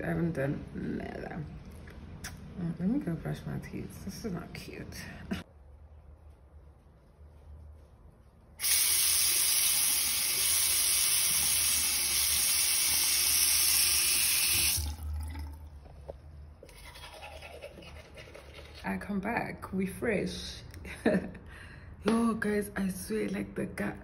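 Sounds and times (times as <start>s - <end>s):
tap running into washbasin: 8.6s - 16.2s.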